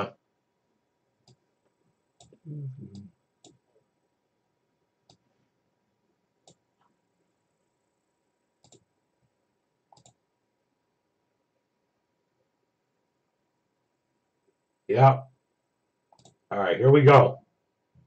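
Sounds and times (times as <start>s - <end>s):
computer mouse clicks: 1.2s - 1.4s, 3.4s - 3.6s, 5.0s - 5.3s, 6.4s - 6.9s, 8.6s - 8.9s, 9.9s - 10.2s, 16.1s - 16.4s
low voice mumbling: 2.4s - 3.1s.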